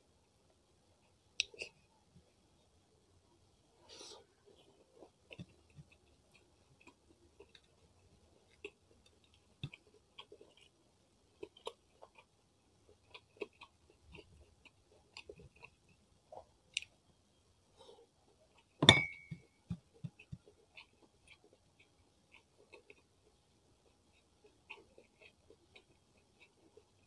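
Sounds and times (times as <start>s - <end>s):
wet chewing sounds: 4.2s - 17.0s, 19.7s - 27.0s
sharp clink with ring: 18.8s - 19.4s.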